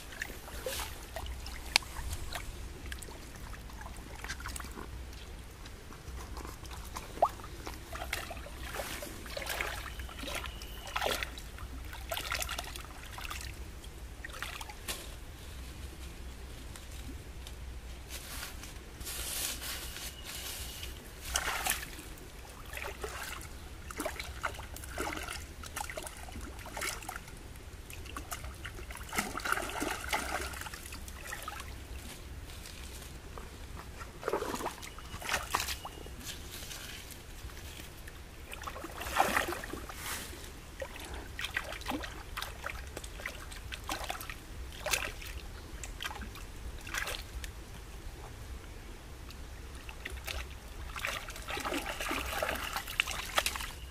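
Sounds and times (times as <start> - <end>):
stream water splashing: 0.0 - 14.9, 21.0 - 32.2, 34.0 - 36.1, 37.4 - 47.5, 49.3 - 53.9.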